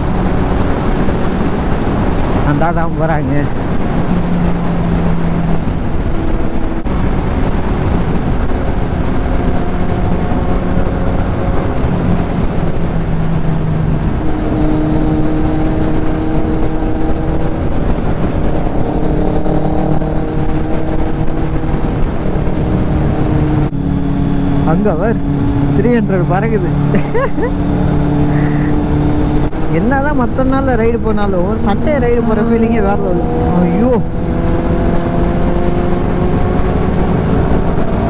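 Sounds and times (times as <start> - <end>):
motorcycle engine running: 0.0 - 38.0
wind rushing over microphone: 0.0 - 38.0.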